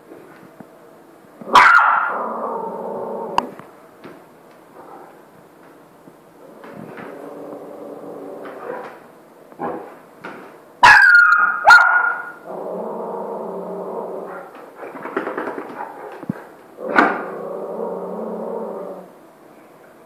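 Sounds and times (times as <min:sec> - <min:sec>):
dog barking: 0:01.5 - 0:02.2, 0:10.8 - 0:12.4.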